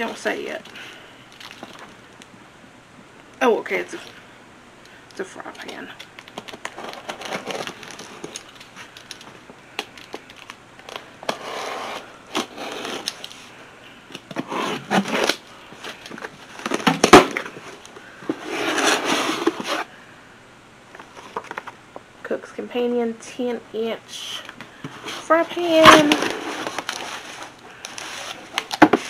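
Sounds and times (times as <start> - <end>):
packaging rustling and crinkling: 0.6 - 2.0, 5.6 - 13.5, 14.1 - 19.9, 24.9 - 29.0.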